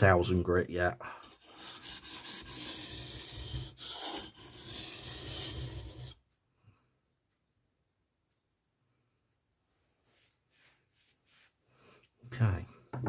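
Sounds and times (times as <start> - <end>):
knife blade scraping on whetstone: 1.2 - 6.2.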